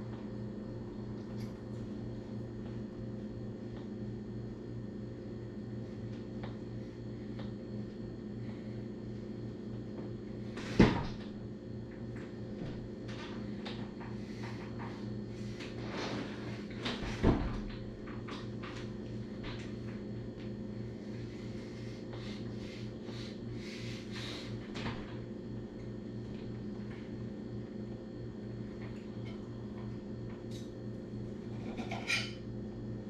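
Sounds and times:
ceiling fan humming: 0:00.0 - 0:33.0.

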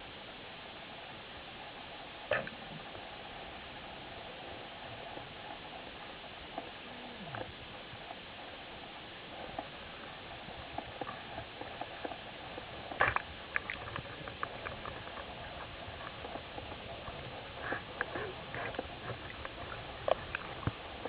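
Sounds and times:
sharp clicks and crackles: 0:10.7 - 0:21.0.

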